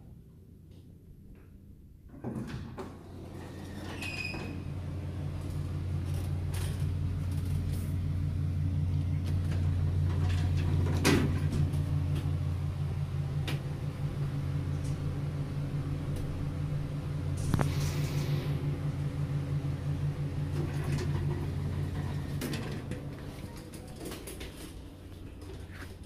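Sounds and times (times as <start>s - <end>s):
car engine humming: 4.6s - 23.8s.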